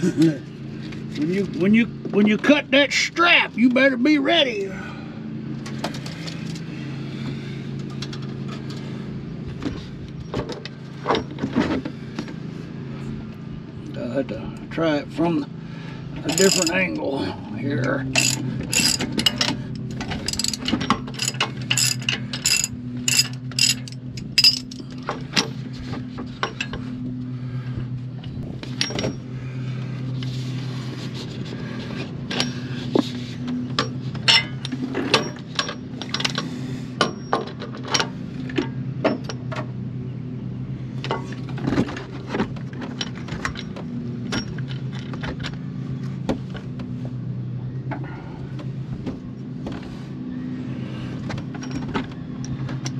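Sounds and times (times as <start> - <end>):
steady low hum: 0.0 - 52.9
metallic clicks and knocks: 16.2 - 16.8, 18.2 - 25.5
ratchet clicking: 16.3 - 16.8, 18.2 - 24.8.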